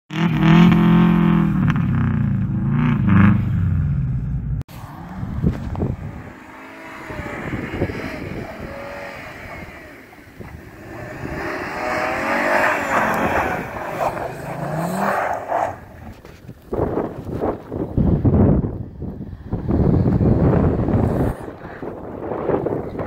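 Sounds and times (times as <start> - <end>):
car engine revving: 0.1 - 16.4
wheels spinning on snow: 4.7 - 23.0.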